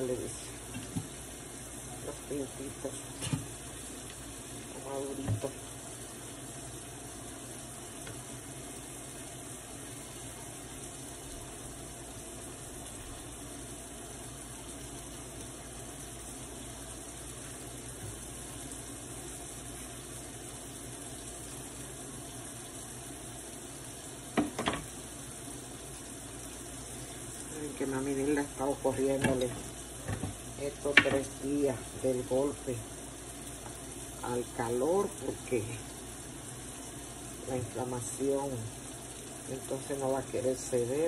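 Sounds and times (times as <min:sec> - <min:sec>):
water boiling in saucepan: 0:00.0 - 0:41.0.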